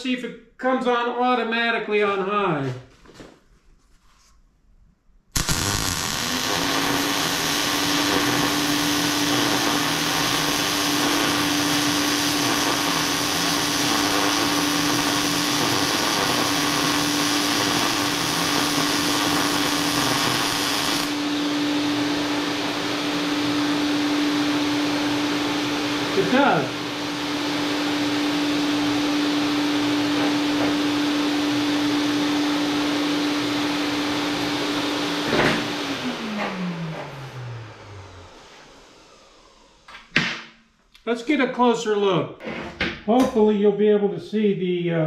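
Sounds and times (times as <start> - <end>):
welding arc sizzling: 5.3 - 21.2
fume extractor humming: 5.4 - 40.5.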